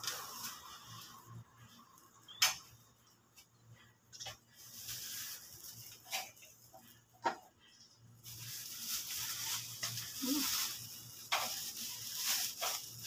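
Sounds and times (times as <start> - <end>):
plastic bag rustling: 0.0 - 1.8, 4.2 - 7.4, 8.1 - 13.0.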